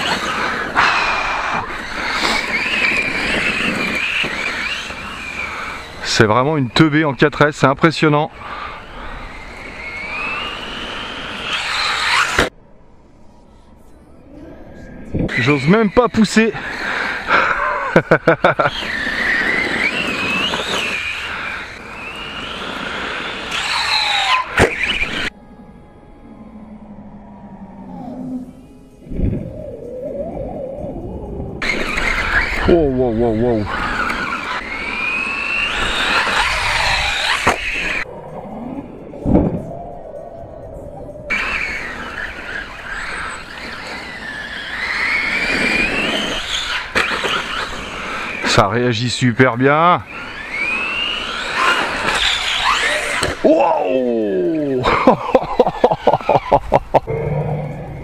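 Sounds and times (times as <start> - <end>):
rc car electric motor whining: 0.0 - 7.0, 8.3 - 12.5, 15.3 - 25.4, 31.6 - 38.1, 41.3 - 58.0
tyre and ground noise: 0.0 - 58.0.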